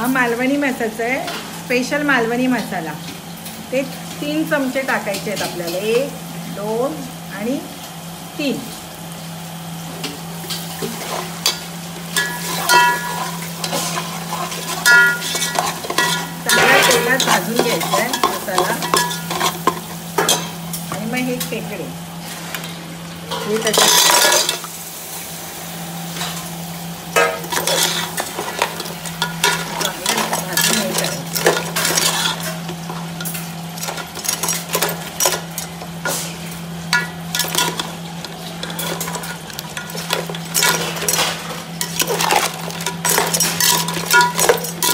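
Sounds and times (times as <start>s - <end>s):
food sizzling in oil: 0.0s - 44.9s
metal spatula scraping a pot: 12.2s - 19.7s, 27.4s - 36.4s.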